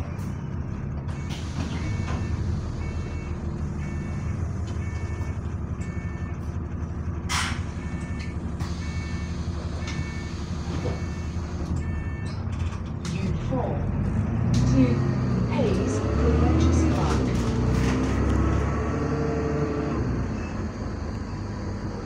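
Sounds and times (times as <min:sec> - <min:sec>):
bus diesel engine droning: 0:00.0 - 0:22.0
warning beeps: 0:07.8 - 0:12.4.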